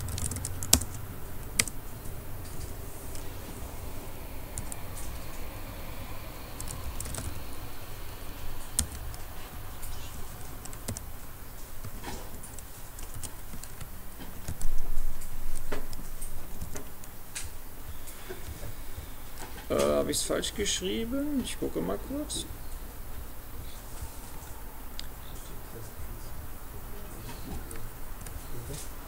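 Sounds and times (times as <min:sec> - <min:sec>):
typing on keyboard: 0:00.0 - 0:01.8, 0:06.6 - 0:07.5, 0:08.6 - 0:11.1, 0:11.8 - 0:17.1.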